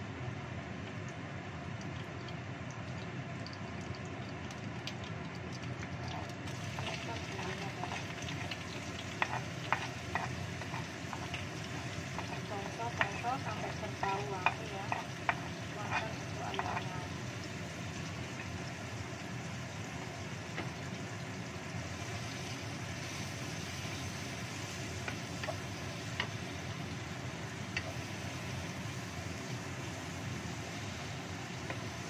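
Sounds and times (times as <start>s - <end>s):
spice paste sizzling in oil: 2.8s - 32.0s
wooden spatula scraping wok: 6.6s - 17.1s.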